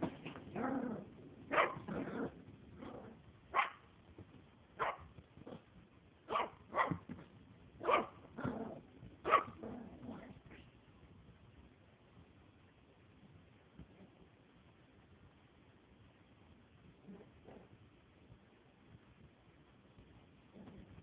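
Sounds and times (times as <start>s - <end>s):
puppy barking: 1.5s - 1.9s, 3.5s - 3.8s, 4.8s - 5.1s, 6.3s - 7.0s, 7.8s - 8.2s, 9.2s - 9.6s.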